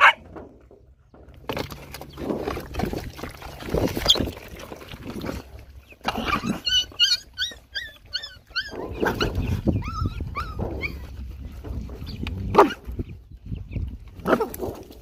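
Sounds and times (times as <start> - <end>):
dogs eating: 0.0 - 13.2
puppies yelping: 5.8 - 12.9.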